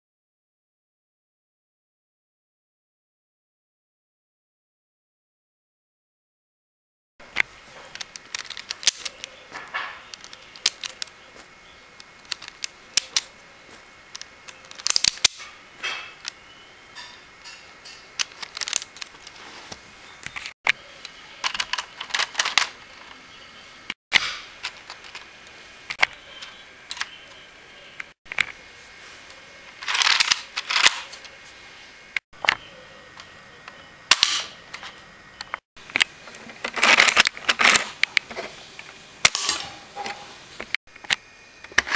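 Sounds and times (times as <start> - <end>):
plastic toy gun mechanism clicking: 7.9 - 9.3, 10.1 - 11.1, 12.0 - 13.3, 14.1 - 15.5, 18.2 - 19.1, 29.8 - 31.1, 34.1 - 34.5
rattling clusters of clicks: 7.9 - 13.3, 14.1 - 15.5, 17.0 - 19.4, 29.8 - 31.2.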